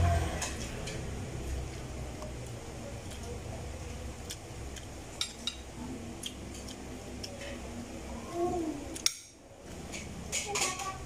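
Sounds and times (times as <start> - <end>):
soft voice: 7.3 - 9.0.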